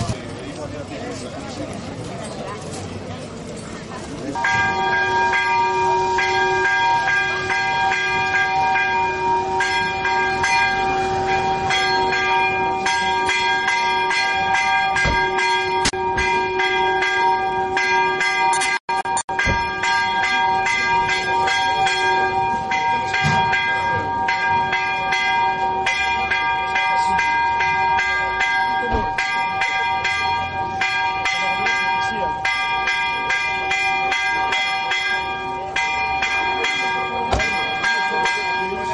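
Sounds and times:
church bells pealing: 1.9 - 38.9.

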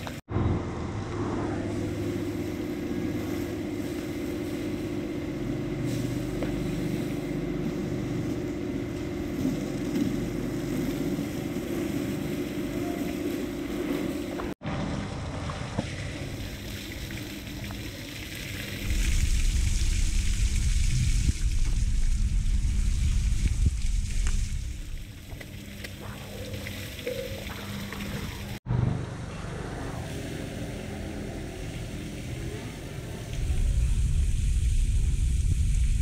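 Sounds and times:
steady low hum: 0.0 - 36.0
pressure washer spray: 1.7 - 14.6
water splashing into pit: 15.0 - 28.6.

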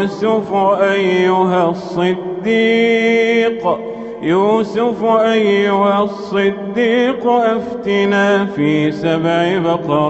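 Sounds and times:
man chanting melodically: 0.0 - 10.0.

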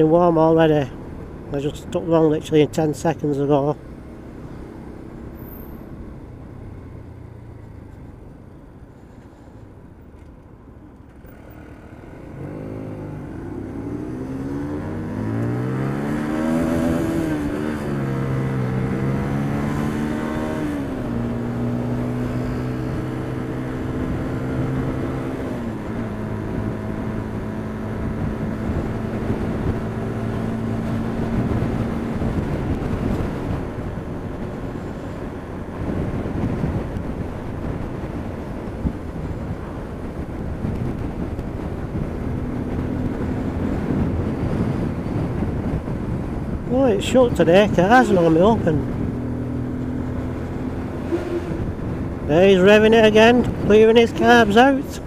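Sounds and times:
motorcycle engine accelerating: 11.2 - 54.6
wind noise: 13.8 - 55.0.

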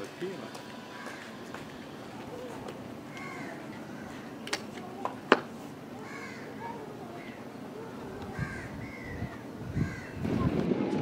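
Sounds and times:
crows cawing: 0.7 - 4.6, 6.0 - 7.4, 8.3 - 10.2.

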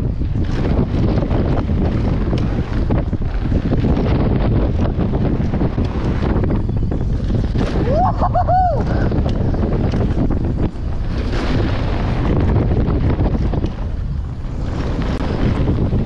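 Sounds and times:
bike rattling over stones: 0.0 - 16.0
wind buffeting microphone: 0.0 - 16.0
warbling squeal: 7.7 - 9.1.

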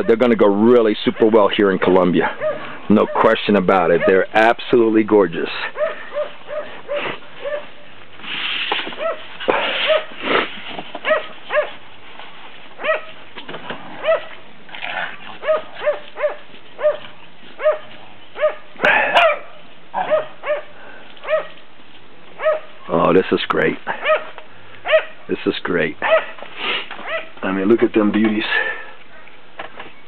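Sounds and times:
dog barking in high yaps: 2.4 - 4.3, 5.8 - 7.8, 9.0 - 10.2, 11.0 - 11.8, 12.8 - 13.2, 14.0 - 14.4, 15.4 - 21.6, 22.4 - 22.8, 24.0 - 25.2, 26.0 - 26.4, 27.0 - 27.4.

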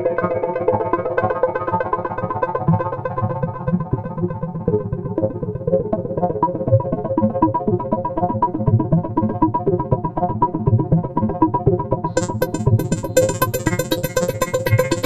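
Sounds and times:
electronic synthesizer music: 12.2 - 15.0.

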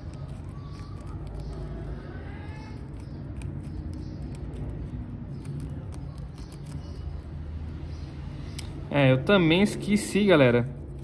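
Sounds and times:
steady background noise: 0.0 - 11.0.

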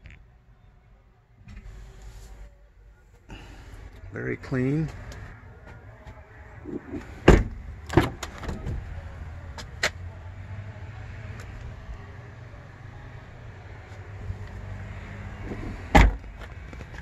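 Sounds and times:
car door shutting with a thud: 7.0 - 8.8, 15.4 - 16.5.

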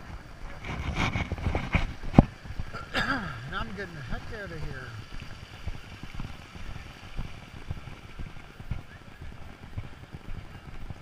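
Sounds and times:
rustling of movement: 0.0 - 4.1.

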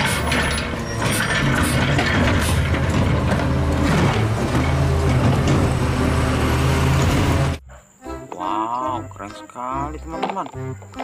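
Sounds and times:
garbage truck running: 0.0 - 7.6
hydraulic arm clattering: 0.0 - 7.6.

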